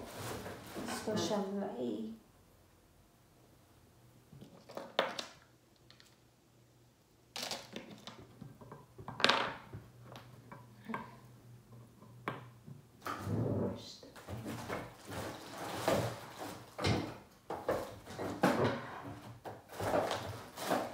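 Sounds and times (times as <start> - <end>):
rustling clatter: 14.2 - 20.9.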